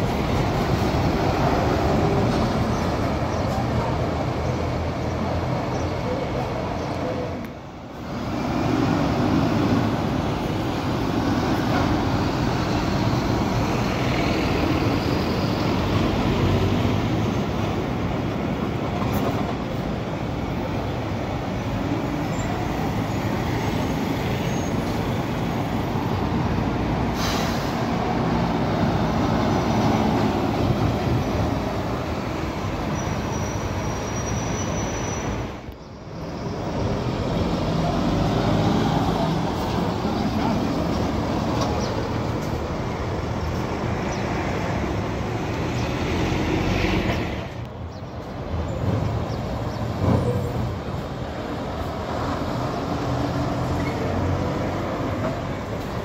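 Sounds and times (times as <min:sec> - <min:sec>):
buses running and passing: 0:00.0 - 0:56.0
brief high squeal: 0:33.3 - 0:35.4.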